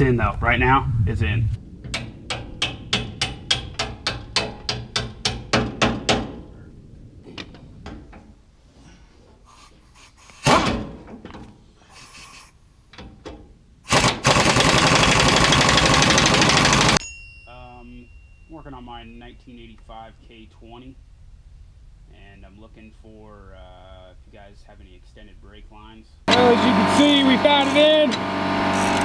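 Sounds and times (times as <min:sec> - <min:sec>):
pneumatic impact wrench rattling: 0:10.0 - 0:11.0, 0:13.9 - 0:17.0, 0:28.1 - 0:29.0.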